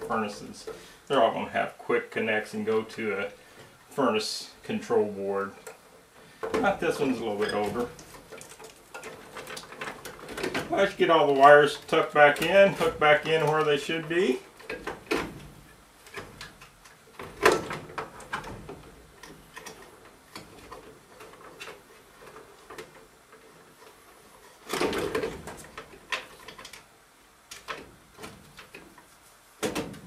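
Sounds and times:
wires rustling: 0:00.0 - 0:30.0.

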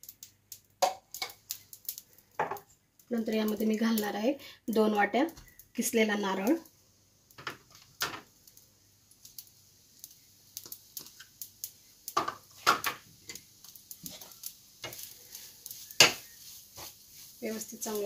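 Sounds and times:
spoon scraping pan: 0:12.2 - 0:18.0.

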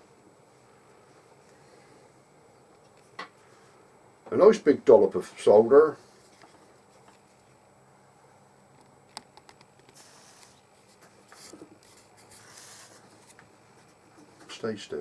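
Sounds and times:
soldering iron hissing on flux: 0:09.8 - 0:14.9.

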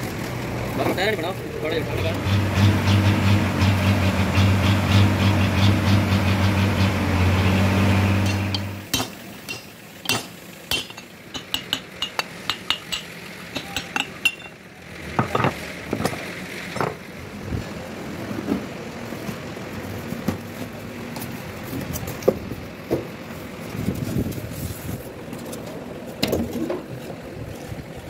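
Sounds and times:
hammer tapping on metal: 0:08.2 - 0:14.5.

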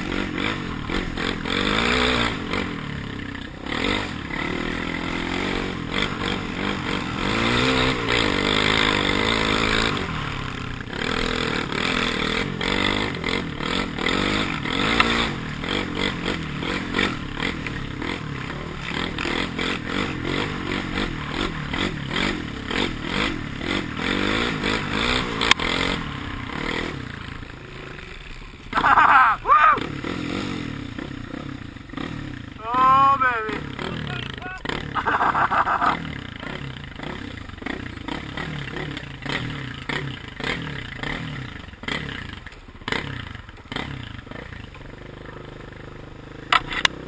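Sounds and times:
quad engine revving: 0:00.0 - 0:47.0.

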